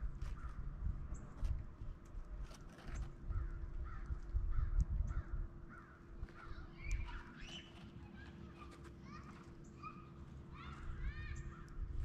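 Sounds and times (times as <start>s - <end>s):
crows cawing: 3.4s - 6.6s.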